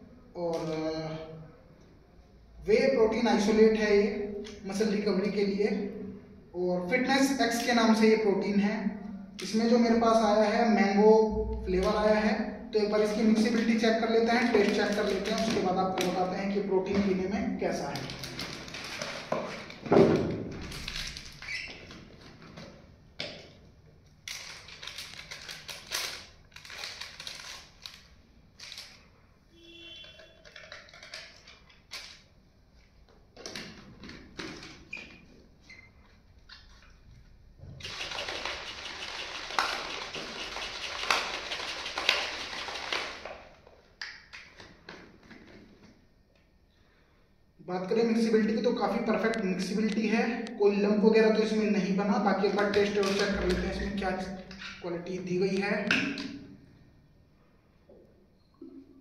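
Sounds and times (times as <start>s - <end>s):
plastic shaker bottle rattling: 12.8s - 23.4s, 24.2s - 29.0s, 30.1s - 32.2s, 37.8s - 45.8s, 52.4s - 54.8s
plastic pouch crinkling: 13.0s - 16.6s, 17.7s - 22.5s, 24.2s - 29.1s, 37.8s - 43.8s.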